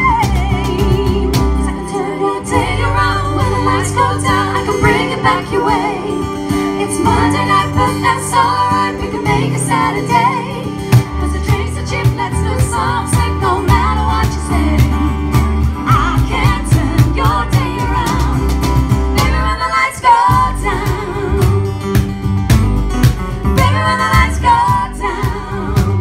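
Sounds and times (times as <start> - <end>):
woman singing: 0.0 - 18.6, 19.2 - 21.8, 23.6 - 26.0
strummed acoustic guitar: 0.0 - 26.0
upright double bass: 0.0 - 26.0
steady percussion beat: 20.3 - 26.0.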